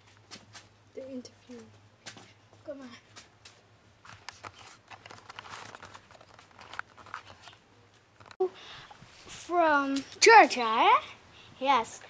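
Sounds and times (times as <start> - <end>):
camera handling clicks and rustling: 4.1 - 7.6.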